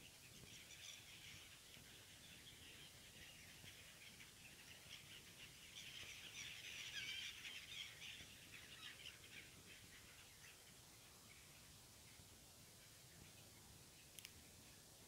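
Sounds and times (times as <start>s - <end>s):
flock of gulls calling: 0.0s - 11.6s.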